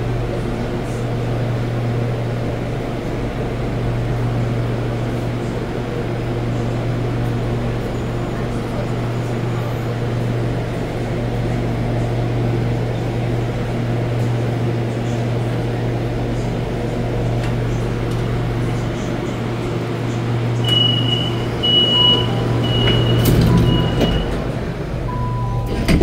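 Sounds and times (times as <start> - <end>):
metro train low hum: 0.0 - 26.0
door-closing warning beeps: 20.6 - 24.5, 25.1 - 26.0.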